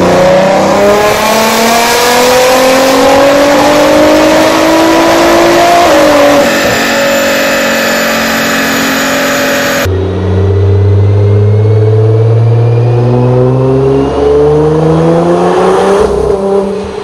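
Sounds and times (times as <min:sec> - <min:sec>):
car engine revving on dyno: 0:00.0 - 0:17.0.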